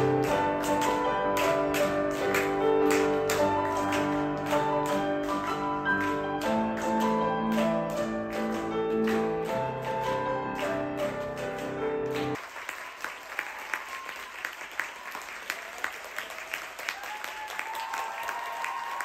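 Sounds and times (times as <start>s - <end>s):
solo piano classical piece: 0.0s - 12.4s
audience applause: 0.0s - 19.0s.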